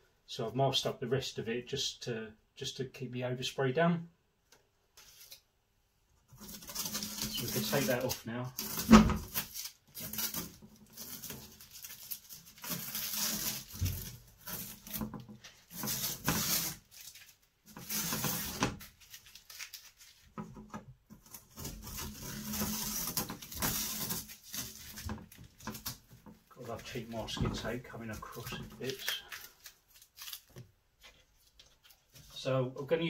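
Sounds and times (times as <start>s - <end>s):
masking tape tearing off: 6.3s - 20.4s, 21.2s - 30.6s.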